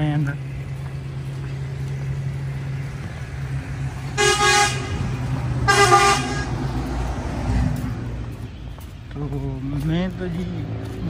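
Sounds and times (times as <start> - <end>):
vehicle horn honks: 4.1 - 6.7.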